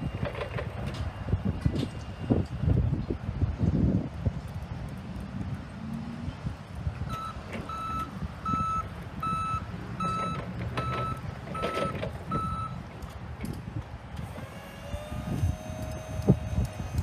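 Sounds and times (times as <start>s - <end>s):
forklift reverse alarm beeping: 7.1s - 12.8s.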